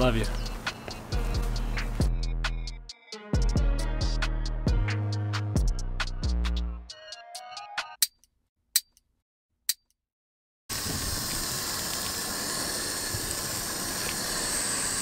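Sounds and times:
background music: 0:00.0 - 0:08.1
water spraying from garden hose: 0:10.7 - 0:15.0.

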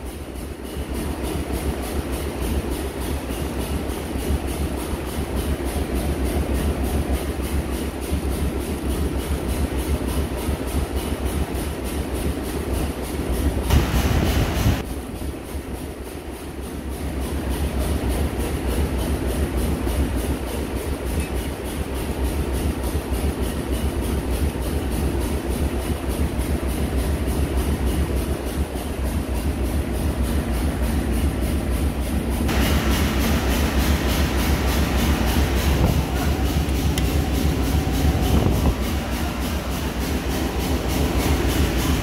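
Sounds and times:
engine room machinery droning: 0:00.0 - 0:42.0
hiss: 0:13.7 - 0:14.8, 0:32.5 - 0:42.0.

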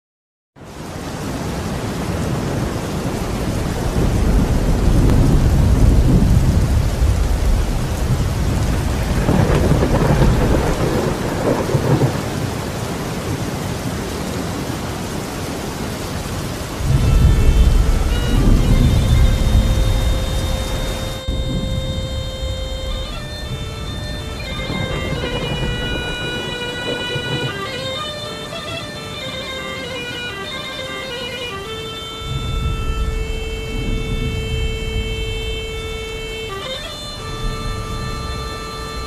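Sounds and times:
steady rain: 0:00.6 - 0:39.0
rolling thunder: 0:02.0 - 0:14.7, 0:16.6 - 0:28.2, 0:32.2 - 0:39.0.

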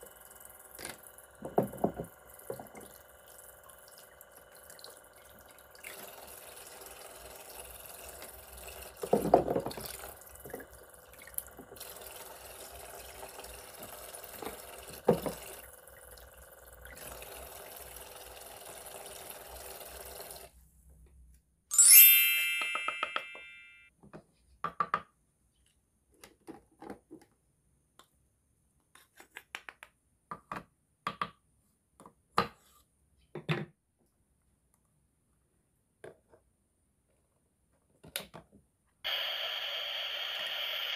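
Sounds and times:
toy faucet water stream: 0:00.0 - 0:20.5
bright chime: 0:21.7 - 0:23.9.

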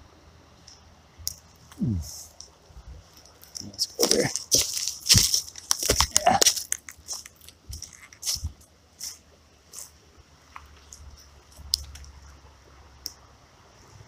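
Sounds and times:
footsteps crunching dry leaves: 0:03.0 - 0:10.0.

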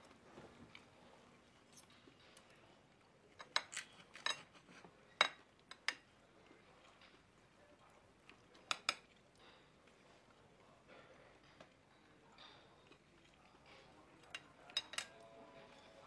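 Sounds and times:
cutlery clinking on a plate: 0:03.4 - 0:06.1, 0:14.2 - 0:15.2.

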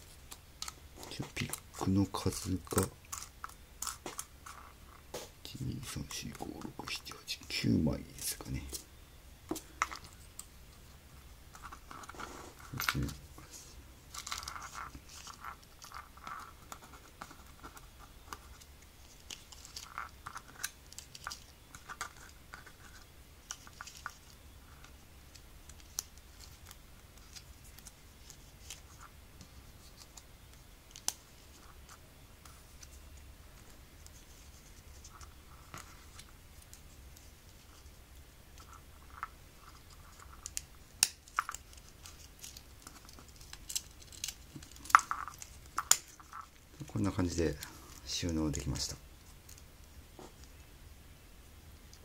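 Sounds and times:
faint scratching: 0:09.6 - 0:50.6.

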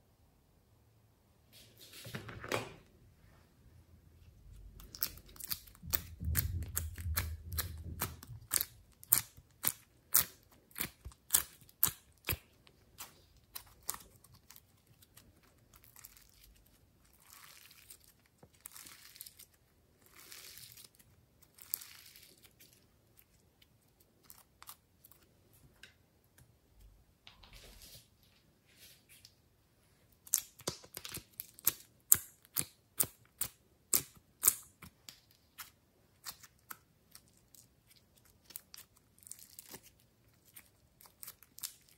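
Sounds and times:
slime stretching noise: 0:04.5 - 0:25.3.

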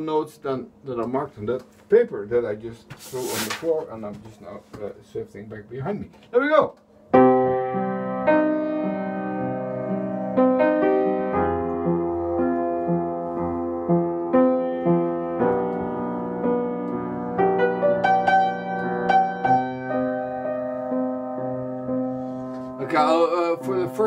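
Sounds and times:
upright piano chords: 0:07.0 - 0:24.0.

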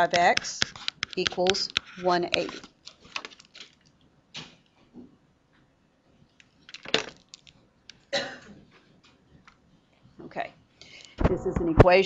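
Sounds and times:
sharp clicks and taps: 0:00.0 - 0:03.3.

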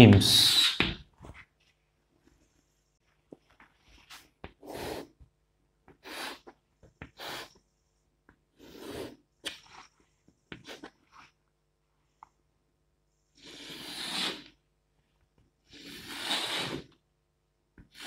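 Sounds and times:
chalk scratching on blackboard: 0:00.3 - 0:00.9.

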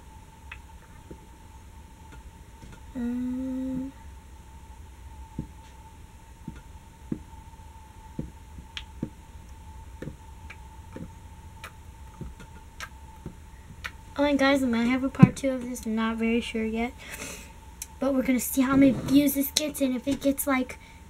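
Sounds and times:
woman humming: 0:02.9 - 0:04.0
faint steady high tone: 0:02.9 - 0:04.2.

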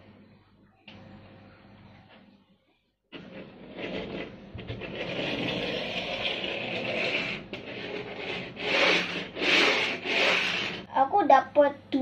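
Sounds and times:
toy skateboard rolling on table: 0:03.1 - 0:10.9.

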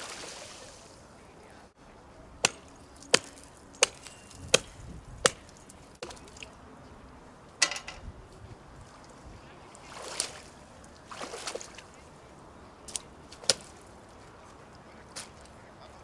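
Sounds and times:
pole chopping ice: 0:02.4 - 0:05.6.

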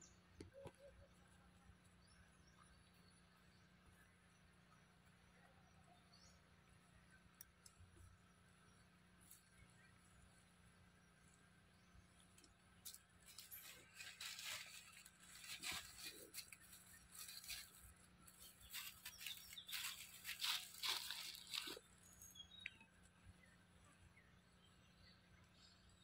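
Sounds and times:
rustling of dry leaves: 0:12.2 - 0:22.6.

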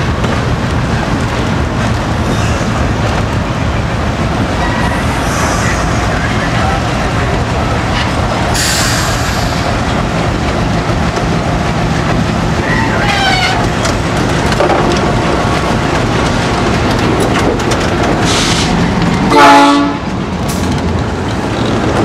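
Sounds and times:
diesel locomotive engine running: 0:00.0 - 0:22.0
loud horn blast: 0:19.3 - 0:20.0.

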